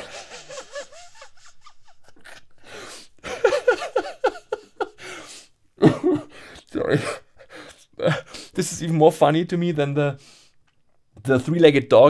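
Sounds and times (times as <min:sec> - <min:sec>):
man laughing: 0:00.0 - 0:05.2, 0:05.8 - 0:08.3.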